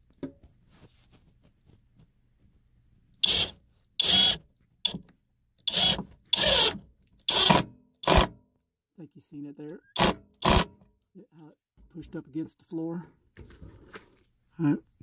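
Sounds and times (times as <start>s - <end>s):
power drill driving a screw: 3.2s - 5.0s, 5.7s - 8.3s, 10.0s - 10.7s.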